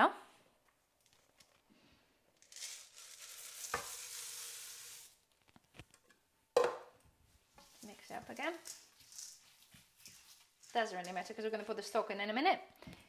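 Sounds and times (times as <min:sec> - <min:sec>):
lentils pouring into wok: 0:02.4 - 0:05.3.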